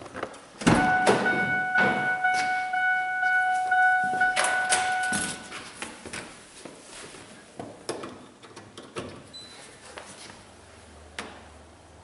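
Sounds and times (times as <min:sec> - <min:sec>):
electronic warning chime: 0:00.8 - 0:05.6.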